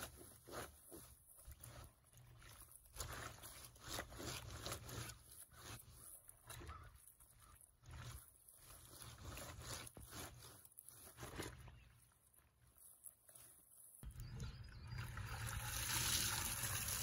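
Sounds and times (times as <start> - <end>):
water sloshing in tub: 0.0 - 17.0
scrubbing on washboard: 2.8 - 6.6, 7.8 - 11.7.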